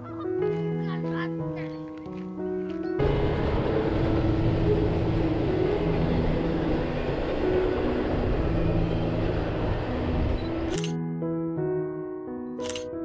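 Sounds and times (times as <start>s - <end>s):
train wheels on rails: 3.0s - 10.9s.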